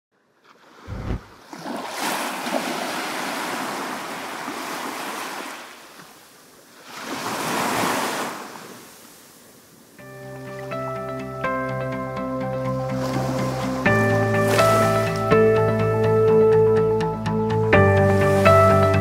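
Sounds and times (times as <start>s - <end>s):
surf washing onto beach: 0.6s - 10.1s, 13.0s - 15.3s
low thump: 0.9s - 1.4s.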